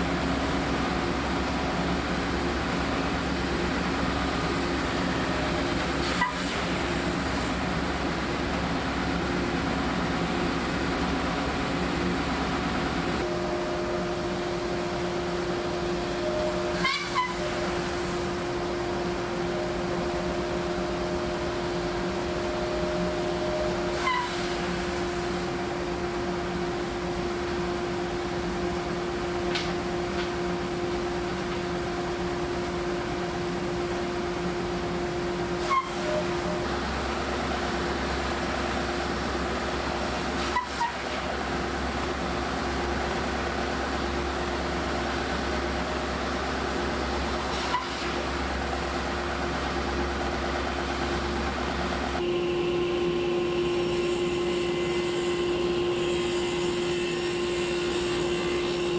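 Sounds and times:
table saw running: 52.2 - 58.9.

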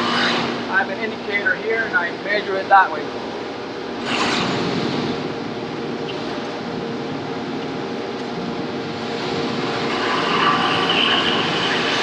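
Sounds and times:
grinding machine running: 7.9 - 12.0
coolant spraying: 9.0 - 12.0.

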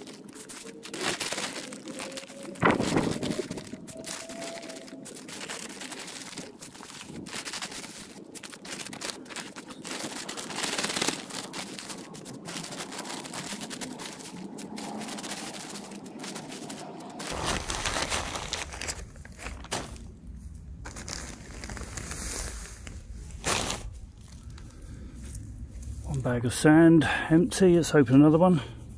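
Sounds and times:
plastic bag crinkling: 0.0 - 26.0.

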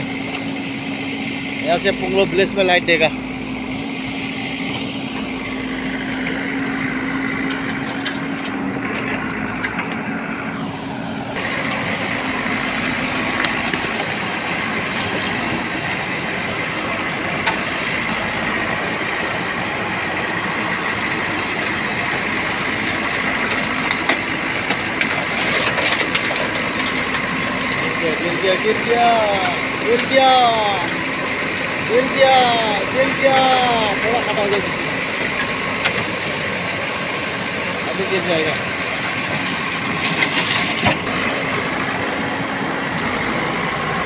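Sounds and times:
diesel engine running: 0.0 - 44.0.

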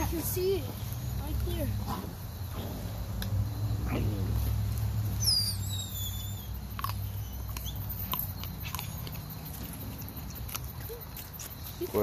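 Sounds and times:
puppies tugging and feeding: 4.2 - 12.0
high falling squeaks: 5.2 - 6.5
puppy crying: 5.2 - 9.1.

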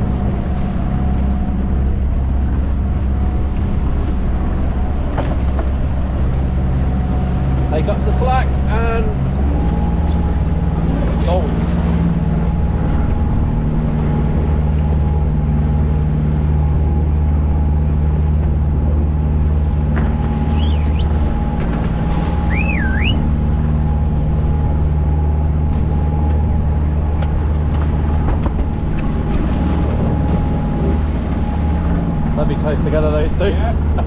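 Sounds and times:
boat engine droning: 0.0 - 34.0
wavering high squeal: 8.5 - 12.8, 20.1 - 25.3.

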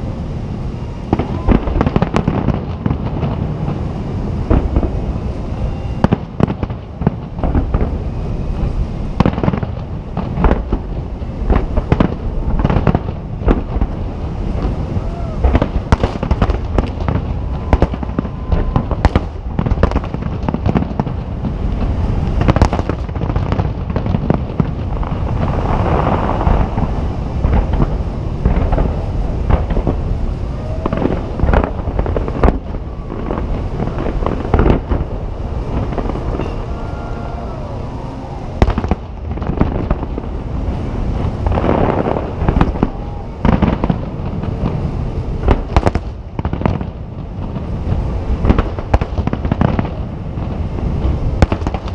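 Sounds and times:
continuous low rumble: 0.0 - 51.9
firework shells bursting: 6.0 - 36.9.

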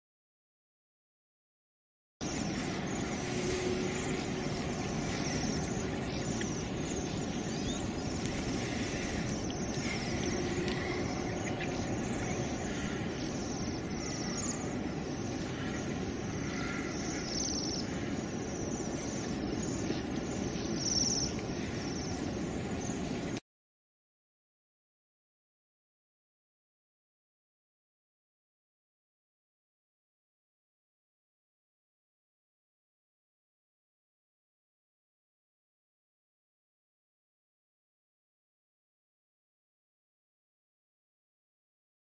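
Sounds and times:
low rumble of distant traffic: 2.2 - 23.4
small birds chirping: 2.2 - 23.4.

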